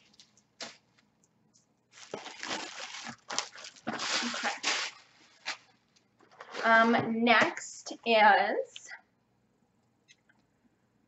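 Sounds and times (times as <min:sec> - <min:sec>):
packaging rustling and crinkling: 0:01.9 - 0:06.9.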